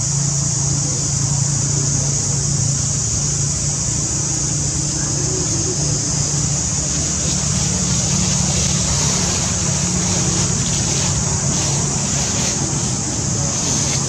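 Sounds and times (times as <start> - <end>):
high-pitched buzz: 0.0 - 14.0
low motor hum: 0.0 - 14.0
dry leaves rustling: 5.2 - 14.0.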